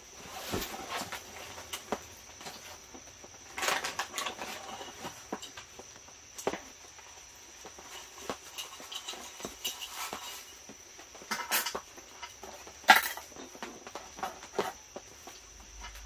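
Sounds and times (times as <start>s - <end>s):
nylon sack rustling: 0.0s - 3.0s.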